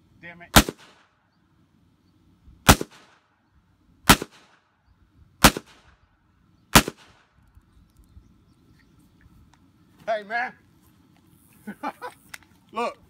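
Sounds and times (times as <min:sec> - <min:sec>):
pistol shots with echo: 0:00.5 - 0:01.1, 0:02.7 - 0:03.2, 0:04.1 - 0:04.6, 0:05.4 - 0:06.0, 0:06.7 - 0:07.3.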